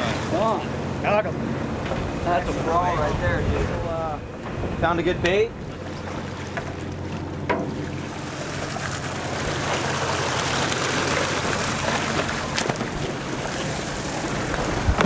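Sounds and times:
water washing along boat hull: 0.0s - 15.0s
wind: 0.0s - 15.0s
fish splashing: 5.7s - 15.0s.

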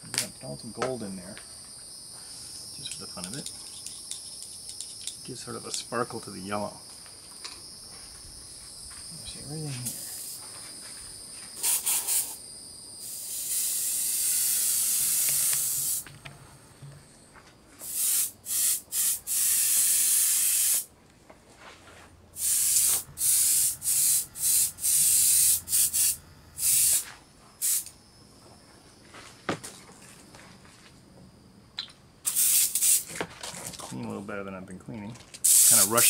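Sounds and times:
airbrush hissing: 9.8s - 10.5s, 11.6s - 12.4s, 13.0s - 16.1s, 17.8s - 20.9s, 22.4s - 27.9s, 32.3s - 33.1s, 35.4s - 36.0s.

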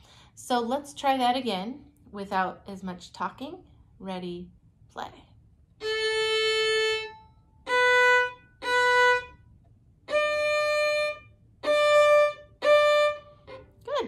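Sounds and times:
solo violin playing slow notes: 5.8s - 13.8s.

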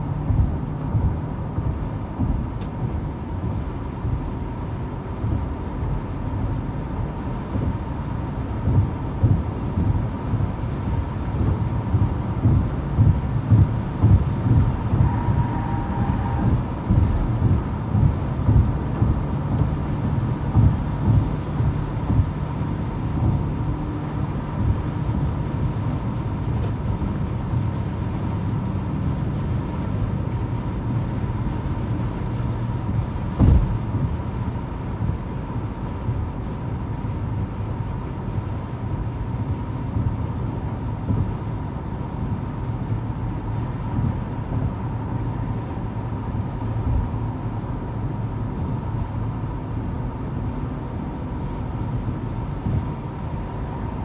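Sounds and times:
car road and tyre noise: 0.0s - 54.0s
loud thump: 33.4s - 34.1s.

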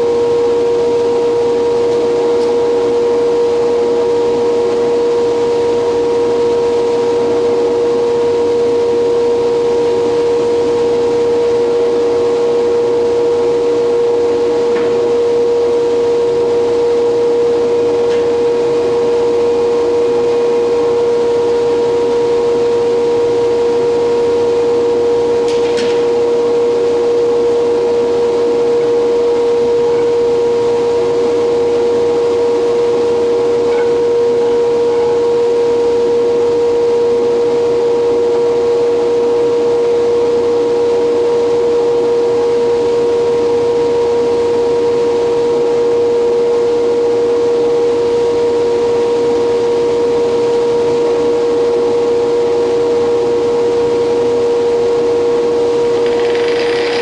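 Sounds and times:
lathe and dust extractor droning: 55.8s - 57.0s.

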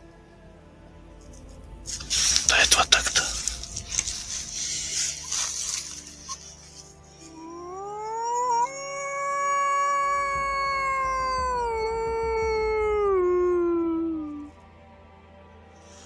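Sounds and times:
wolf-like howl: 7.3s - 14.6s.

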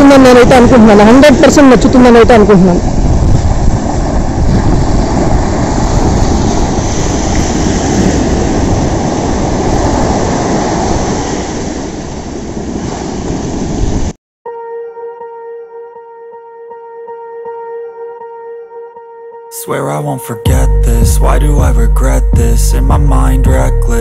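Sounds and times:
sea surf rushing: 0.0s - 14.2s
wind at the shore: 0.0s - 14.2s.

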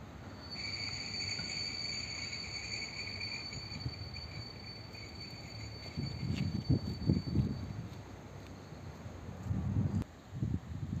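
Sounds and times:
wheel squeal: 0.3s - 8.0s.

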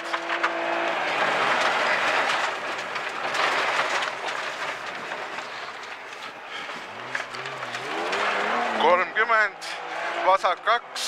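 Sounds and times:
tyres rushing over wet gravel: 0.0s - 11.0s
stones rattling against underbody: 0.2s - 8.9s.

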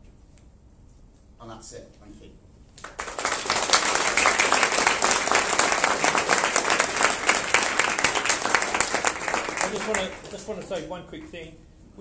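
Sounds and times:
audience applause: 2.8s - 10.8s.

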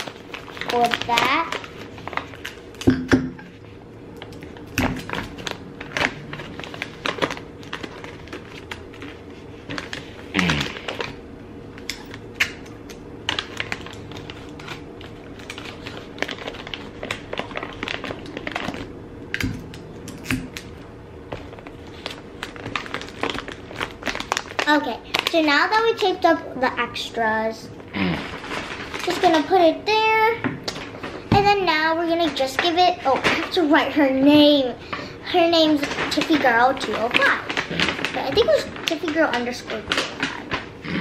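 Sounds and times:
paper packaging rustling: 0.0s - 2.8s, 3.5s - 11.2s, 13.2s - 18.9s, 21.3s - 26.2s, 28.0s - 30.1s, 35.3s - 40.8s.

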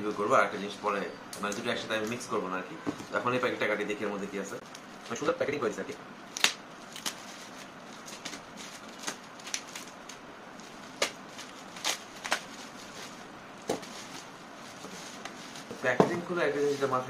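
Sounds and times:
bubble wrap snaps and pops: 6.3s - 7.2s, 9.0s - 10.2s, 10.9s - 12.6s
bubble wrap crinkling: 6.3s - 17.0s.

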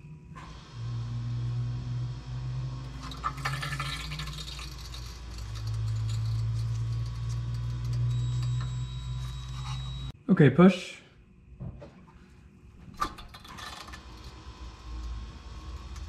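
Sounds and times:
electric pump motor humming: 0.0s - 10.1s.

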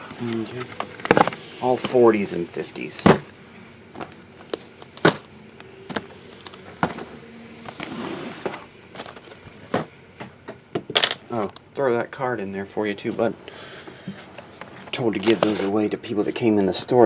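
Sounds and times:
box scraping across table: 6.7s - 9.3s.

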